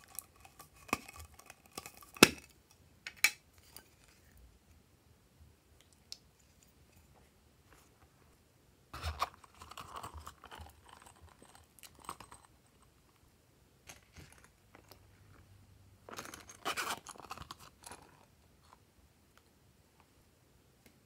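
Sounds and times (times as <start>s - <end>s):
crackly silicone handling noise: 0.0s - 4.4s.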